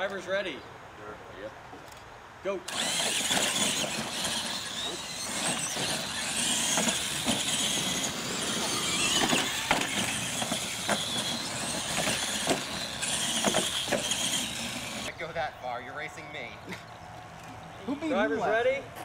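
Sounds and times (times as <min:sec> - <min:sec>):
toy truck motors whining: 0:02.7 - 0:15.1.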